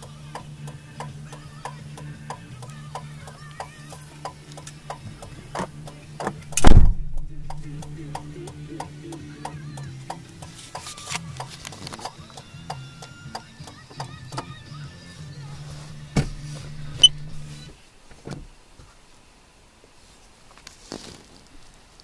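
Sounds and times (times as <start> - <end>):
faint radio music: 0.0 - 22.0
low steady cab hum: 0.0 - 22.0
loud thump: 6.5 - 7.9, 16.2 - 17.4.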